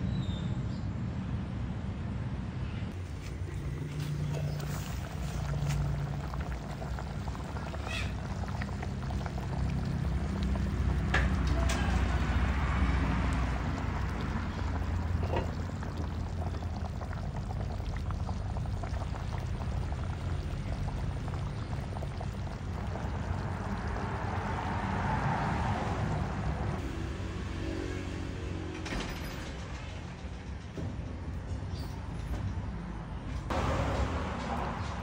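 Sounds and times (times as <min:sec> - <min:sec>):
low steady rumble: 0:02.9 - 0:26.8
curry bubbling in a pot: 0:03.0 - 0:26.8.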